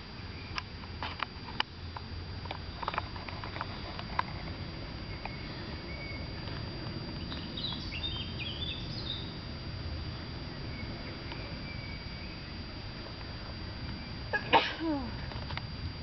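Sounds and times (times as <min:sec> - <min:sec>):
low outdoor background rumble: 0:00.0 - 0:16.0
songbird chirping: 0:05.0 - 0:09.4, 0:10.1 - 0:12.7.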